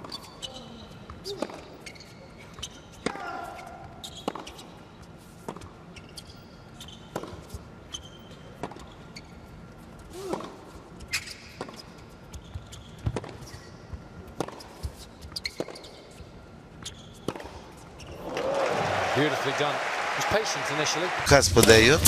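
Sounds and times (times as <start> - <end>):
tennis ball bouncing: 3.8 - 4.8, 5.4 - 8.0, 8.6 - 8.9, 11.2 - 16.0, 16.8 - 17.9
racket hitting tennis ball: 13.1 - 13.5, 14.3 - 15.8, 17.2 - 17.8.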